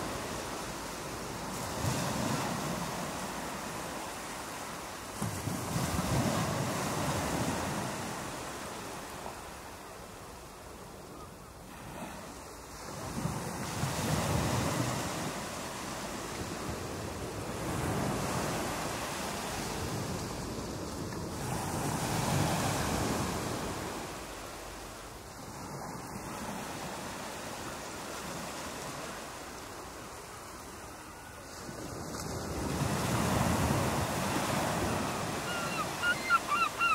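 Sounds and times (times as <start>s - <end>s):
ocean waves breaking: 11.7s - 36.9s.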